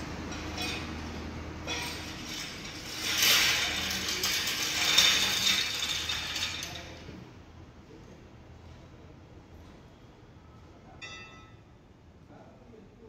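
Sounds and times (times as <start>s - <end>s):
steel stand rolling on concrete: 0.0s - 7.3s.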